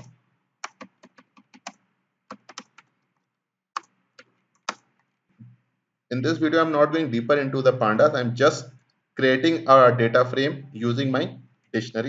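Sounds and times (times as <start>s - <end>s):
keyboard typing: 0.0s - 3.0s, 3.8s - 5.0s.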